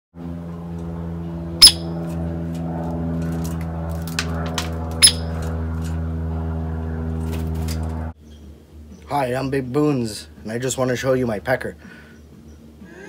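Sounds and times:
steady low hum: 0:00.2 - 0:13.0
woodpecker call notes: 0:01.6 - 0:02.0, 0:05.0 - 0:05.4.

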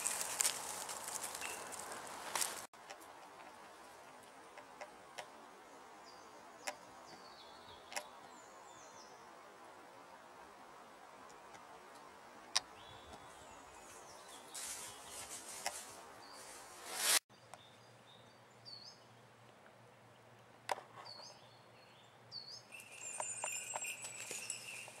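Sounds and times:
rustling: 0:00.0 - 0:04.4, 0:13.8 - 0:17.2, 0:22.8 - 0:25.0
small birds chirping: 0:00.0 - 0:09.4, 0:11.2 - 0:25.0.

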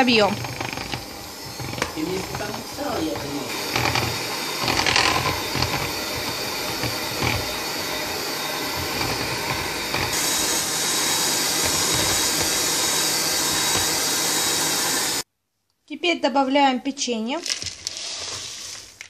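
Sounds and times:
electric hand mixer whirring: 0:00.0 - 0:15.2.

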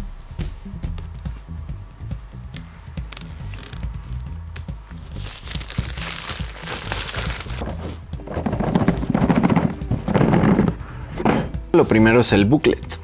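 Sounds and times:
plastic shrink-wrap crinkling: 0:03.1 - 0:04.3, 0:04.9 - 0:07.6
cardboard box lid rubbing: 0:07.3 - 0:11.5.

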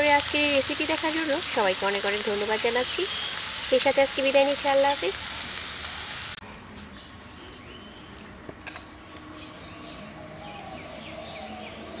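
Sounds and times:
birds chirping faintly: 0:00.0 - 0:06.0
stir-fry sizzling in a wok: 0:00.0 - 0:06.4.

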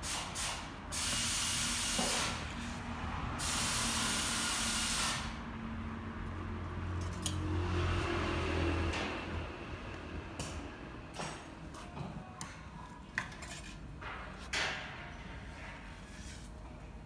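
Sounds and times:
hissing bursts of air: 0:00.0 - 0:05.4.

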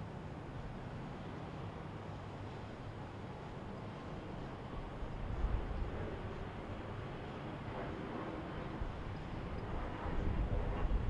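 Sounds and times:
wind on microphone: 0:04.8 - 0:06.7, 0:07.7 - 0:11.0.

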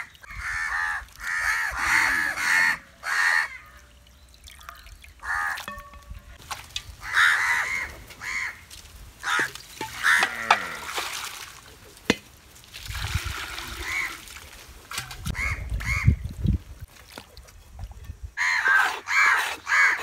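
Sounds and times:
crows cawing: 0:00.3 - 0:03.9, 0:04.6 - 0:05.7, 0:07.0 - 0:08.6, 0:09.2 - 0:10.9, 0:18.4 - 0:20.0
water pouring into metal basin: 0:04.1 - 0:07.1, 0:09.4 - 0:11.7, 0:12.6 - 0:15.3
hands washing fish in water: 0:04.4 - 0:15.4.

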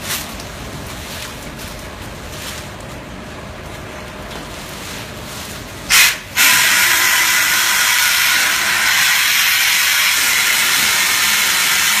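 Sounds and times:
air blow gun hissing: 0:05.9 - 0:12.0.

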